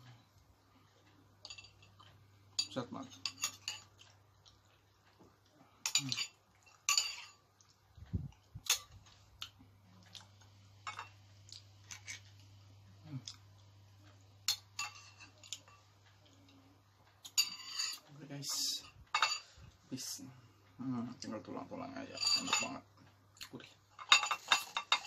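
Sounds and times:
metal spoon scraping bowl: 17.4s - 19.5s, 22.1s - 22.8s.

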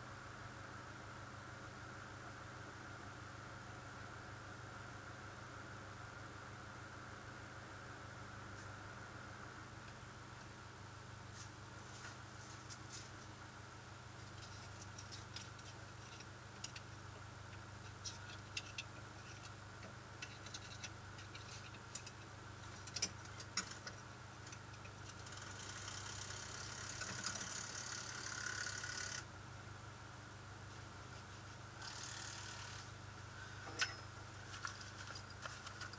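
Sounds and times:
light ticks and rattles: 14.2s - 29.2s, 33.6s - 35.9s.

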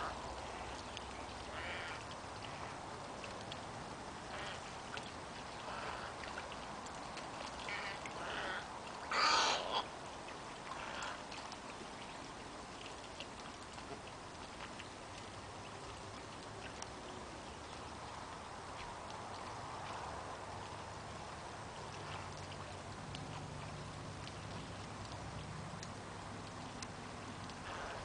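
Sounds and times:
wading birds squawking: 0.0s - 2.8s, 4.2s - 4.8s, 5.5s - 6.5s, 7.6s - 10.0s, 10.6s - 11.4s, 27.6s - 28.0s.

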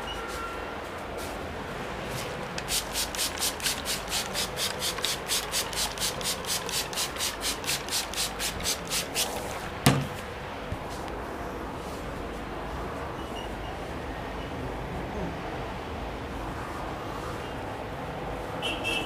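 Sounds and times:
spray bottle hissing sprays: 2.5s - 9.5s
sharp knock: 9.8s - 10.2s.

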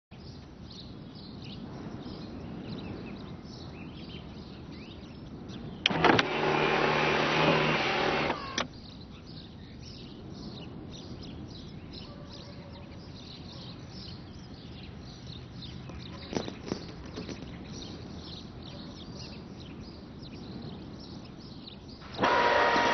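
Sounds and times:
small birds chirping: 0.1s - 22.9s
motor switch clicks: 5.8s - 8.7s, 22.1s - 22.9s
car electric motor whirring: 5.9s - 8.7s, 22.1s - 22.9s.

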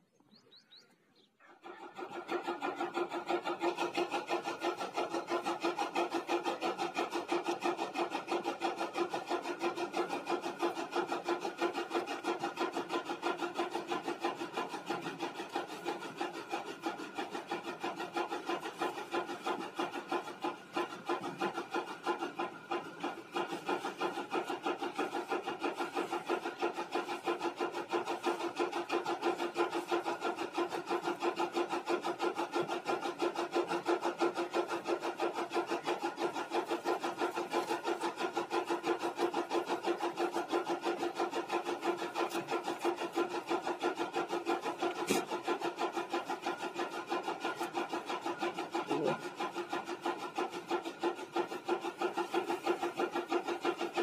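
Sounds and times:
goats chewing grass: 14.0s - 54.0s.

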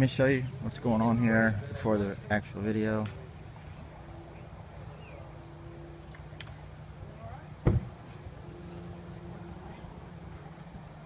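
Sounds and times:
faint steady tone: 0.0s - 11.0s
low outdoor hum: 0.0s - 11.0s
loud thump: 7.6s - 8.0s.

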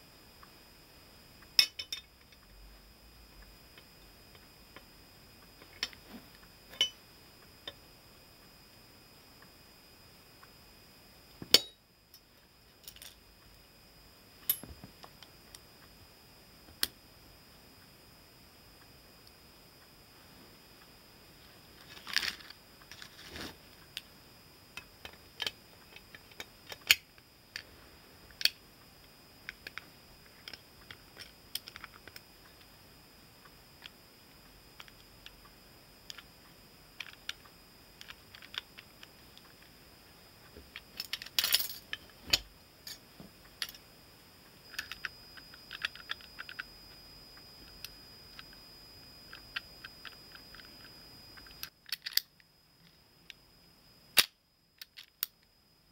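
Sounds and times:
metallic clicks of gun parts: 51.5s - 52.3s.

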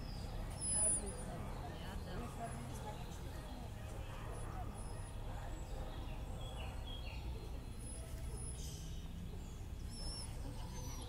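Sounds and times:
small birds singing: 0.0s - 11.0s.

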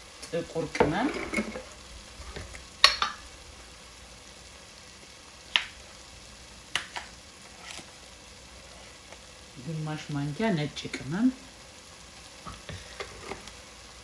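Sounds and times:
onions sizzling in oil: 0.0s - 14.0s
utensil tapping pot: 0.2s - 1.7s, 2.3s - 3.2s.

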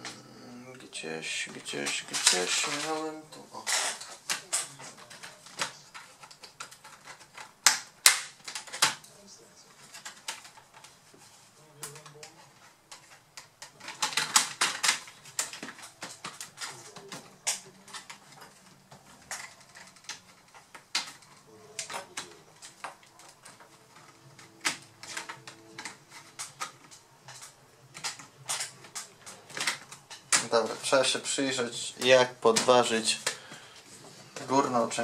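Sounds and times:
plastic laptop clicks and knocks: 3.9s - 9.1s, 11.8s - 30.9s.

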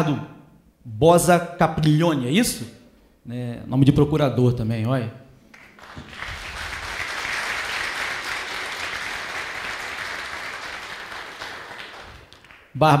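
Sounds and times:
congregation applauding: 5.5s - 13.0s.

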